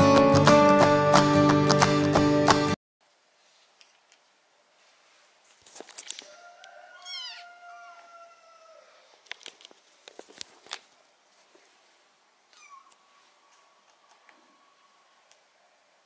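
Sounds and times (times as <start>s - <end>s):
cat meowing: 7.0s - 7.5s, 12.5s - 13.0s.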